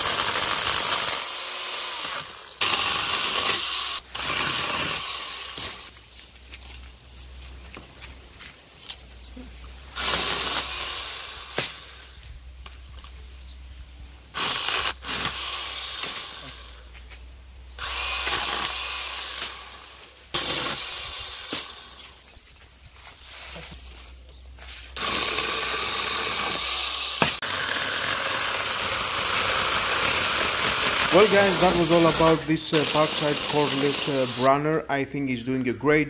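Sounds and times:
electric chainsaw cutting branch: 0.0 - 6.0, 9.9 - 12.2, 14.3 - 16.8, 17.8 - 22.2, 24.8 - 34.6.

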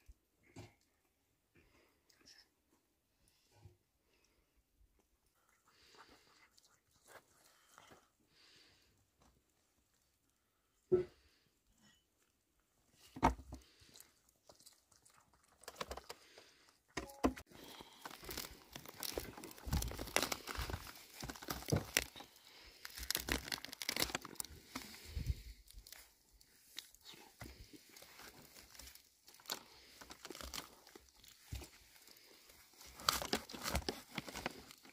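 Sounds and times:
roast food tearing and crunching: 13.8 - 16.5, 17.5 - 34.9.

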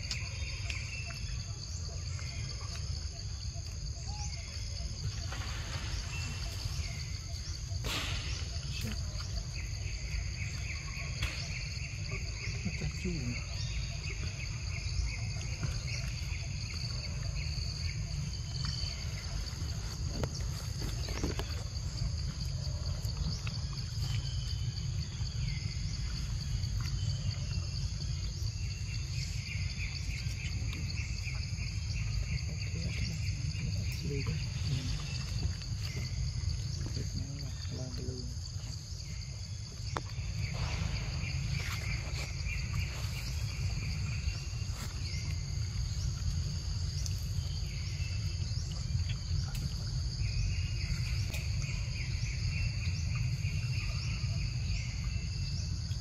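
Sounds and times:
insects buzzing: 0.0 - 56.0
insects pulsing chirps: 0.0 - 56.0
low rumble: 39.1 - 53.8.

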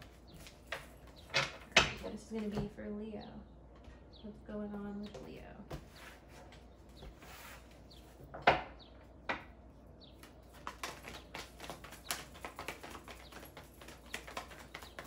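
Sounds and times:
cards being shuffled: 10.2 - 15.0.

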